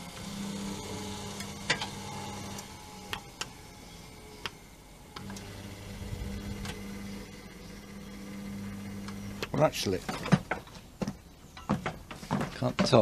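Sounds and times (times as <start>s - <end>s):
electric motor humming: 0.0s - 9.9s.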